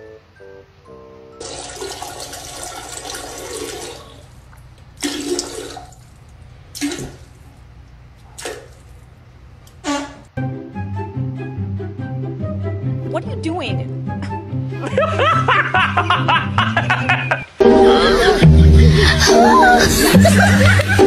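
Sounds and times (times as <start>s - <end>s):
toilet flushing: 1.4s - 7.6s.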